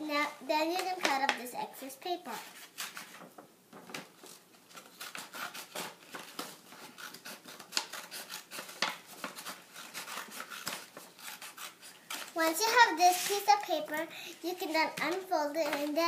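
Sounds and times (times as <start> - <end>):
scissors snipping paper: 4.7 - 13.6.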